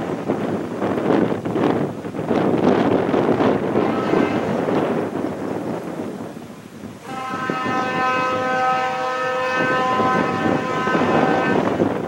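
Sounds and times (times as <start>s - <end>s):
locomotive air horn chord: 3.7s - 4.9s, 7.0s - 12.0s.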